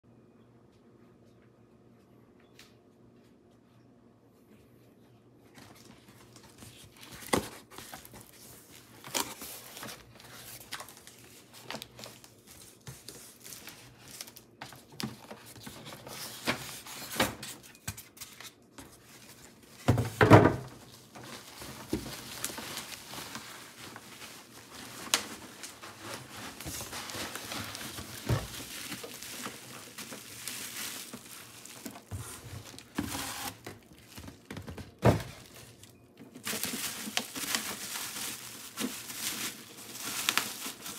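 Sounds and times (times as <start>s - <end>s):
cardboard rustling and scraping: 5.5s - 40.9s
cardboard thunks: 19.8s - 20.8s, 26.5s - 30.3s, 31.2s - 35.6s
tape tearing: 25.0s - 33.8s.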